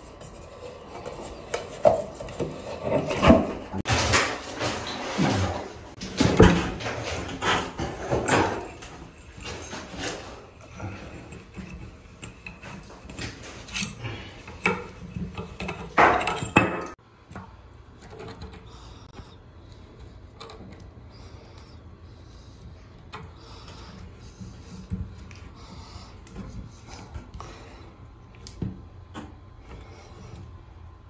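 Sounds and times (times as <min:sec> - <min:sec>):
metal shower arm clinking and scraping: 0:00.3 - 0:17.0.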